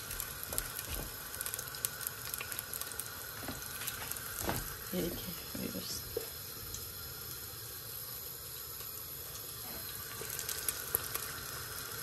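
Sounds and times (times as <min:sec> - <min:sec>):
sharp crackles: 0:00.0 - 0:04.7
onions sizzling in a pot: 0:00.0 - 0:12.0.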